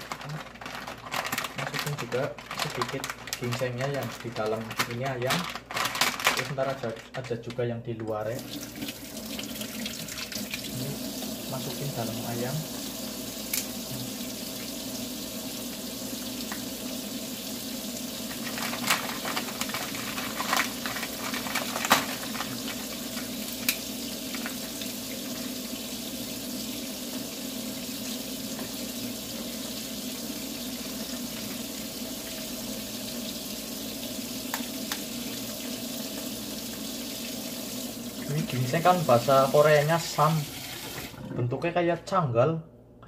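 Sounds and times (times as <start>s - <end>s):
tap water splashing into steel sink: 34.5s - 36.8s.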